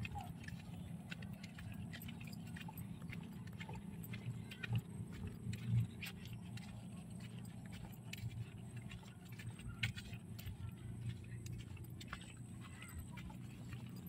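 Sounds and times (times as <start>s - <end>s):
footsteps on dirt trail: 0.0s - 14.0s.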